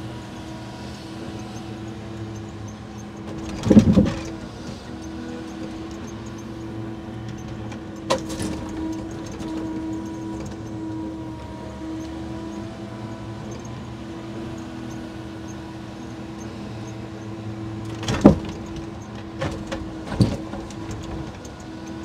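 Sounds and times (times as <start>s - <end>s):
crane hum: 0.0s - 22.0s
timbers clattering: 3.2s - 4.5s.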